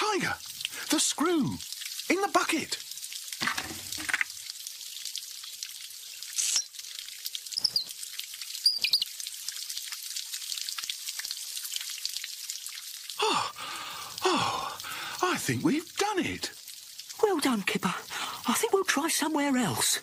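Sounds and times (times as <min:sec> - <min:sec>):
water hissing from pipe: 0:00.0 - 0:20.0
short high squeaks: 0:07.6 - 0:08.0, 0:08.6 - 0:09.0.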